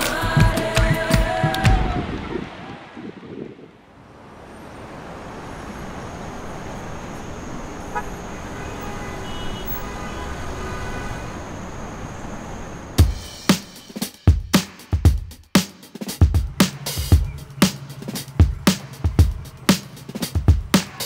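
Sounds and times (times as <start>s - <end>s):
street traffic hum: 0.0s - 21.0s
car horn toot: 7.8s - 11.5s.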